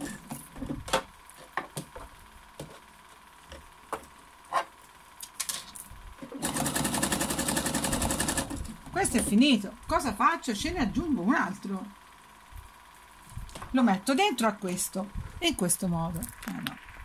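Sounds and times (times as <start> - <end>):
sewing machine stitching: 6.3 - 8.7.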